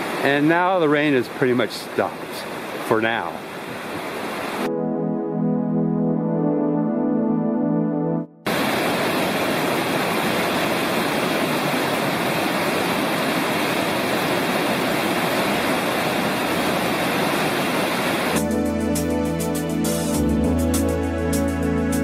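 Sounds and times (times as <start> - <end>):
creek water rushing: 0.0 - 4.7, 8.5 - 18.4
soft background music: 4.7 - 8.4, 18.4 - 22.0.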